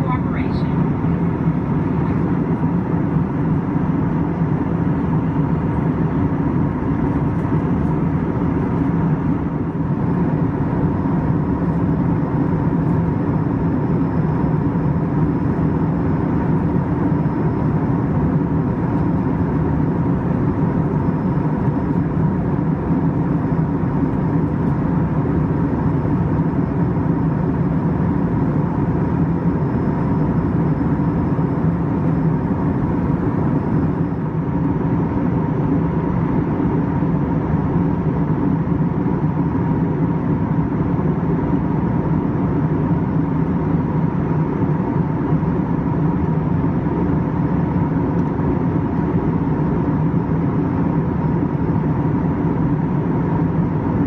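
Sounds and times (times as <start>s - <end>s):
airliner cabin noise: 0.0s - 54.0s
faint engine whine: 0.0s - 54.0s.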